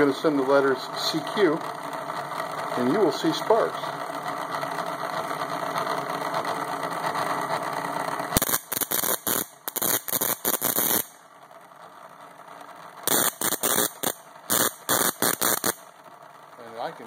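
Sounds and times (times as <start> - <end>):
spark gap motor running: 0.0 - 17.0
morse code spark bursts: 8.4 - 11.2, 13.0 - 15.9.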